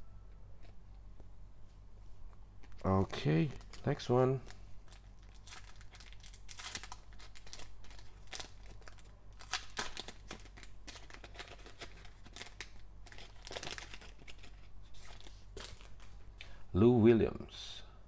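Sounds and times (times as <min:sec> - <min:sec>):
foil wrapper tearing and crinkling: 0:03.4 - 0:16.1.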